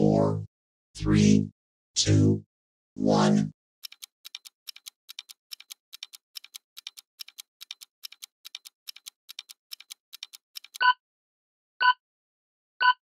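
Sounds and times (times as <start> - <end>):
clock-like ticking: 3.8 - 10.9.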